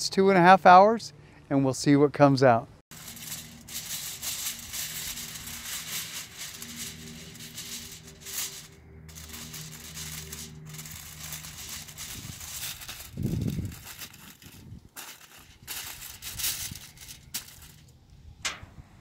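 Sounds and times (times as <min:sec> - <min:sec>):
aluminium foil crinkling: 0:02.9 - 0:17.9.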